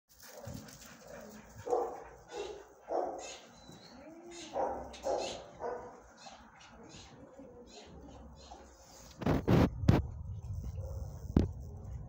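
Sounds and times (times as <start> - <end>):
dog barking: 0.3 - 3.4, 4.5 - 6.0.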